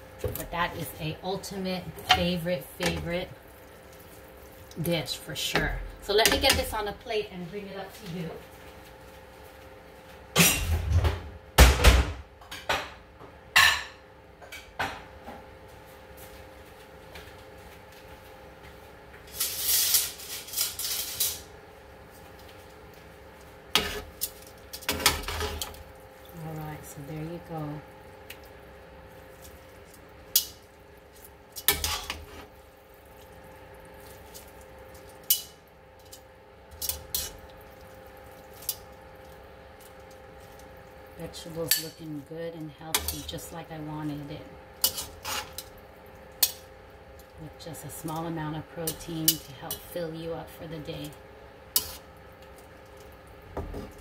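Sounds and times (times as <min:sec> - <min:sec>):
faint steady hum: 0:12.5 - 0:54.0
metal tongs clinking on bowl: 0:41.6 - 0:42.0, 0:48.8 - 0:50.0.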